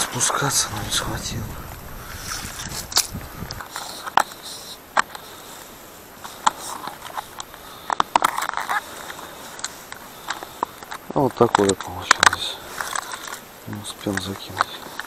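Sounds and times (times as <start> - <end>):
crunchy scraping: 0.0 - 15.0
plastic rustling: 0.0 - 15.0
plastic clicks: 6.2 - 15.0.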